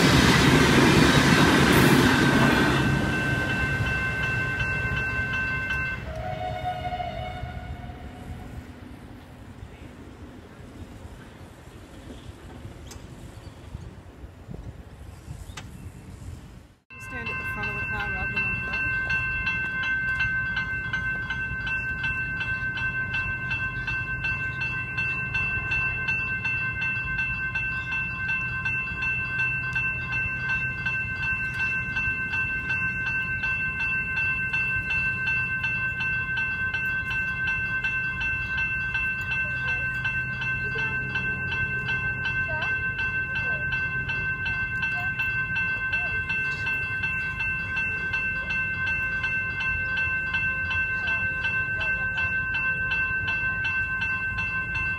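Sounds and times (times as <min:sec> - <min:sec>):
level crossing bell ringing: 0:02.1 - 0:07.2, 0:16.9 - 0:54.9.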